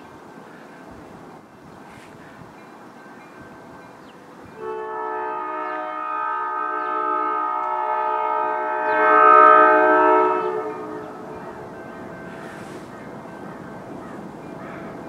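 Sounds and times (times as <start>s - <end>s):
locomotive air horn blast: 4.5s - 13.0s.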